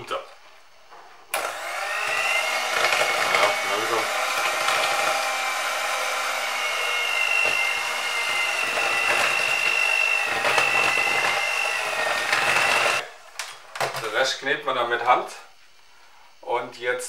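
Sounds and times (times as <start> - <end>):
electric hand mixer whining: 1.3 - 13.3.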